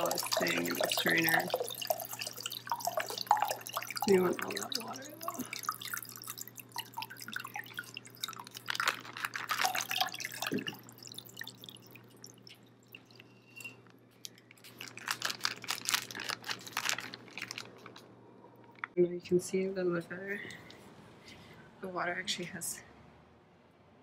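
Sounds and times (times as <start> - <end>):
water dripping into a glass cup: 0.0 - 15.2.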